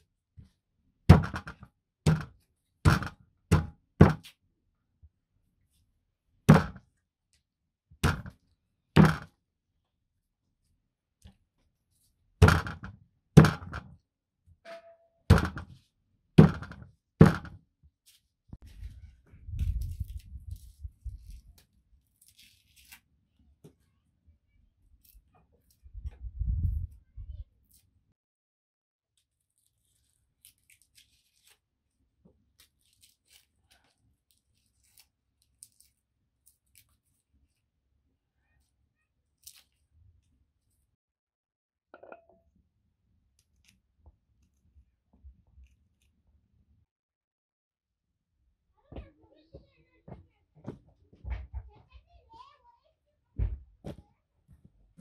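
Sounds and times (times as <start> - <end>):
hatchet chopping on wooden board: 1.1 - 4.2, 6.5 - 6.8, 9.0 - 9.3, 12.4 - 13.8, 16.4 - 17.6
garlic skins crackling: 19.6 - 23.1, 29.5 - 31.7, 32.6 - 37.2, 39.4 - 39.8.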